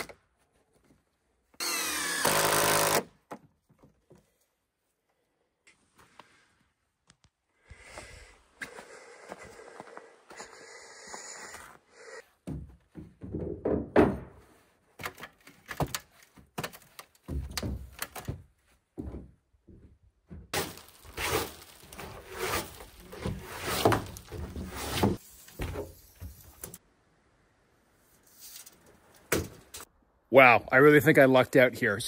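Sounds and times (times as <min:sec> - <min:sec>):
footsteps on plywood floor: 0:17.3 - 0:20.5.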